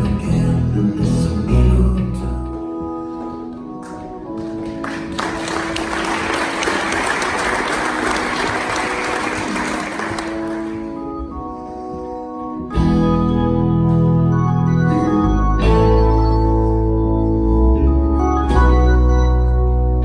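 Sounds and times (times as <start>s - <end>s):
electronic organ chords: 0.0s - 20.0s
audience applauding: 3.8s - 11.1s.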